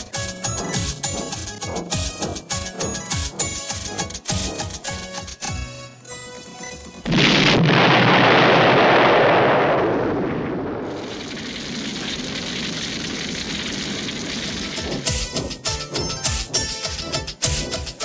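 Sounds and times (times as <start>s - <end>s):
explosion blast: 7.0s - 14.6s
flames burning: 7.0s - 15.7s.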